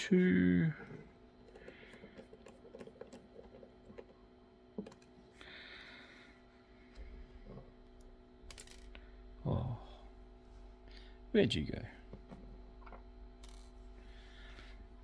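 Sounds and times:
handling small parts: 0.8 - 5.2, 6.9 - 9.0, 12.2 - 13.8.

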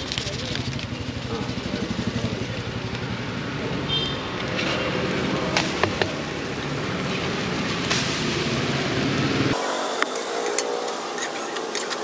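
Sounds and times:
traffic rumble: 0.0 - 12.0
metal spatula scraping on griddle: 10.1 - 12.0.

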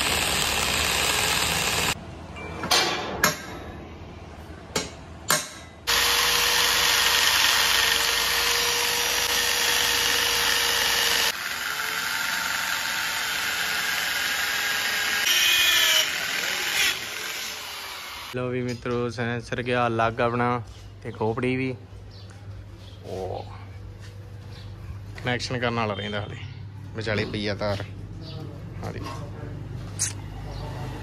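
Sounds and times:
electric hand drill running: 0.0 - 2.0, 5.9 - 18.4.

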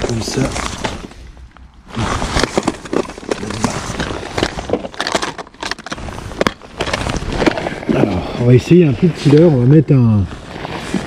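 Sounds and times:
fishing tackle rustling and clicking: 0.0 - 8.0.

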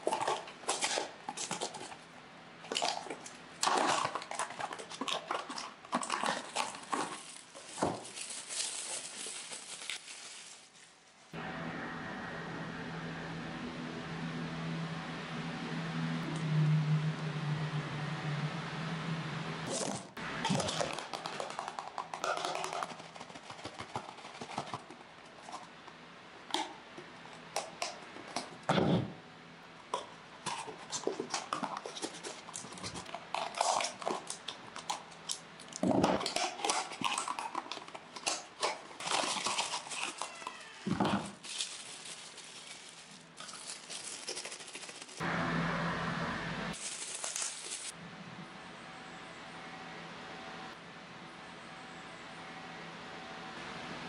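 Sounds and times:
packaging crinkling and rustling: 6.0 - 11.4, 38.2 - 45.2, 46.8 - 48.0.

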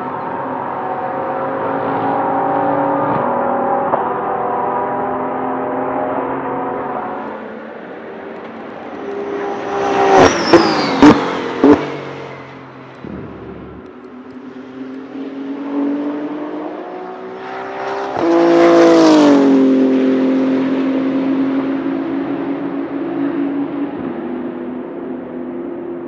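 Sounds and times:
race car passing at speed: 0.0 - 26.0
sharp exhaust bangs: 13.0 - 14.0.

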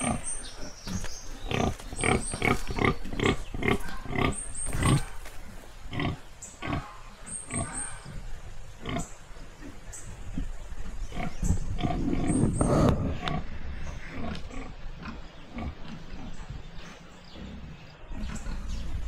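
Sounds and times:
pig grunting: 10.2 - 19.0.

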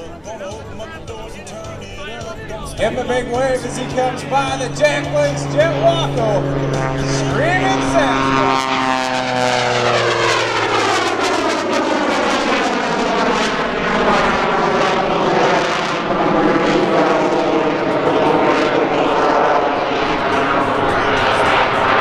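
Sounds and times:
radial engine and propeller: 0.0 - 22.0
turbojet rush: 0.0 - 22.0.

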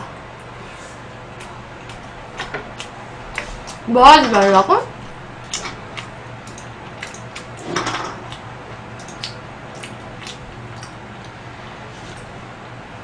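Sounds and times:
wet mouth chewing sounds: 1.3 - 3.8, 5.1 - 7.6, 8.2 - 11.4.

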